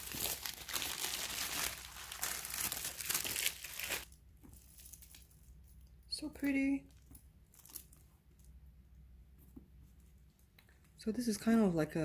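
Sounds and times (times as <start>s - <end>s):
tissue paper rustling: 0.0s - 5.2s.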